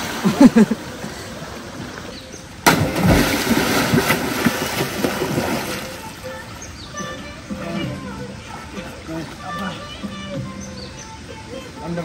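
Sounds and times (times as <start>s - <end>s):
people swimming and splashing: 0.0s - 10.4s
loud water splash: 2.6s - 6.0s.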